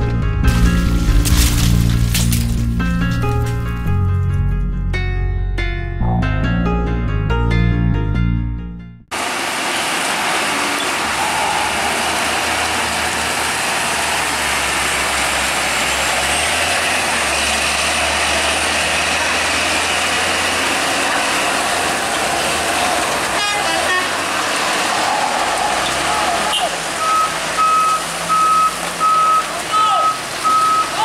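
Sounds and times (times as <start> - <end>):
traffic noise: 9.1 - 31.0
truck engine under load: 9.1 - 31.0
horns tooting: 10.2 - 17.9, 21.8 - 31.0.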